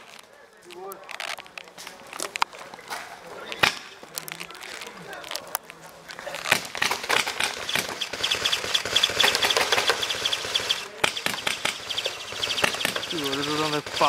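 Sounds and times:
paintball markers firing: 0:03.5 - 0:14.0.

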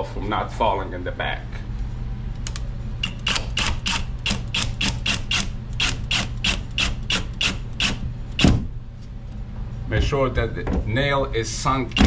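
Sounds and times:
drill driving screw: 0:03.0 - 0:08.5.

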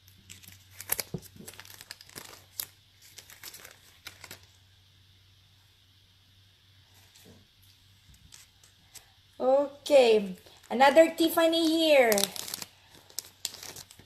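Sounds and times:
plastic packaging crinkling: 0:00.0 - 0:04.6, 0:11.4 - 0:14.0.

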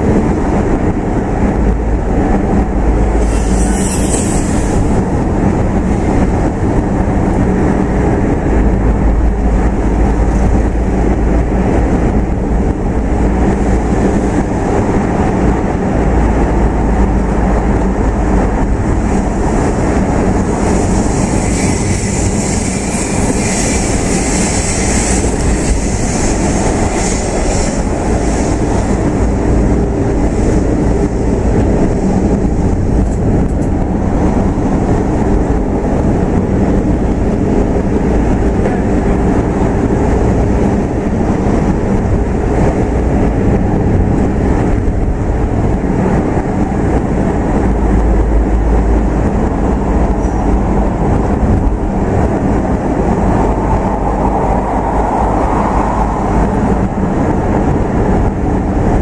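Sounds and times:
car engine and tyre rumble: 0:00.0 - 0:59.0.

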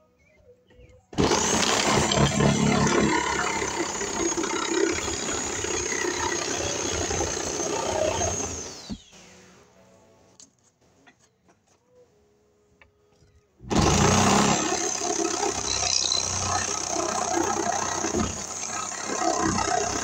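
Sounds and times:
loud motor noise: 0:01.2 - 0:08.9, 0:13.7 - 0:20.0.

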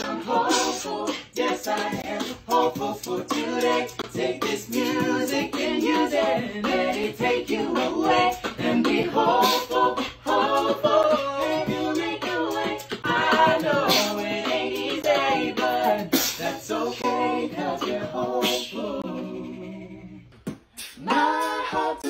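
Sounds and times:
woman singing a cappella: 0:00.0 - 0:20.2.

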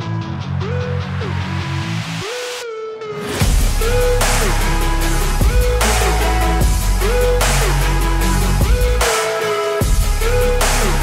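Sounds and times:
electronic music with deep bass: 0:00.0 - 0:11.0.

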